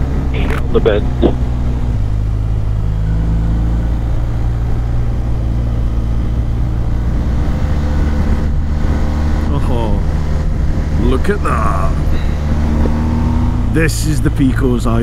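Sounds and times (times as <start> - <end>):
motorcycle engine cruising: 0.0 - 15.0
wind noise on microphone: 4.6 - 11.3, 12.0 - 13.6.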